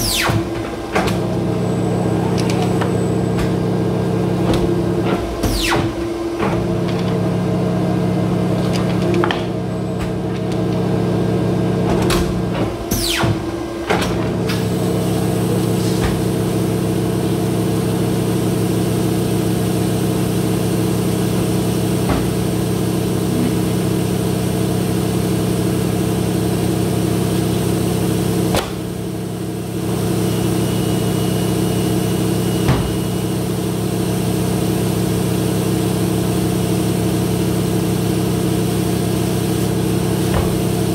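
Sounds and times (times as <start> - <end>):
paper cutter machine hum: 0.0 - 40.9.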